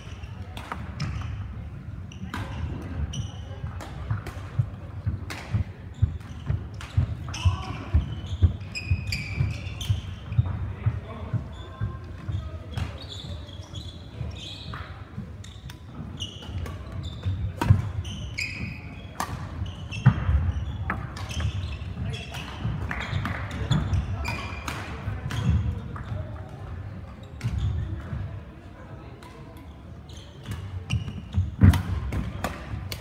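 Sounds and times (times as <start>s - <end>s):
shoes squeaking on floor: 1.0s - 3.7s, 5.6s - 24.6s, 29.6s - 32.1s
rackets striking shuttlecock: 19.2s - 21.5s, 30.4s - 33.0s.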